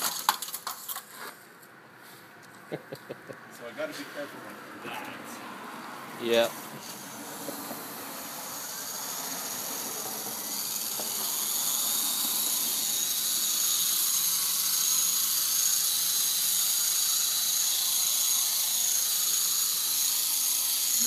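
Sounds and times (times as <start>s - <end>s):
rc helicopter motor whine: 4.9s - 21.0s.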